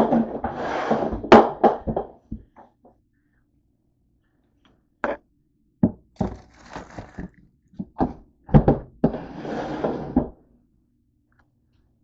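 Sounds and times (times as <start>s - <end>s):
rustling: 6.2s - 7.4s.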